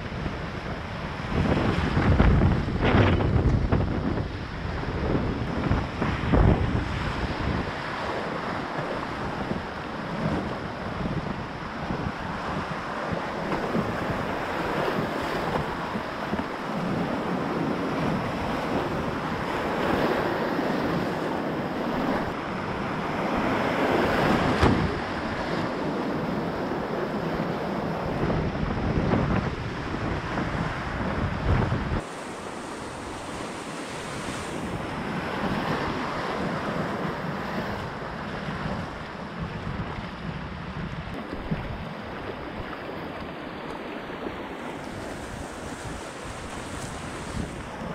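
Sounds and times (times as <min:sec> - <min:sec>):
wind buffeting microphone: 0:00.0 - 0:47.9
whitewater rushing and splashing: 0:11.6 - 0:28.0.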